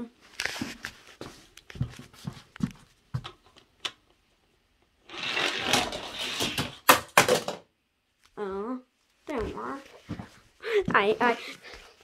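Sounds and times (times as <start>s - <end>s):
toy car rolling on plastic track: 5.0s - 7.6s.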